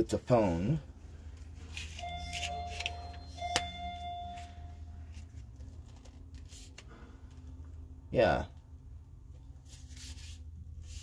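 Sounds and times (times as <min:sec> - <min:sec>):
steady electronic tones: 0:02.0 - 0:05.0.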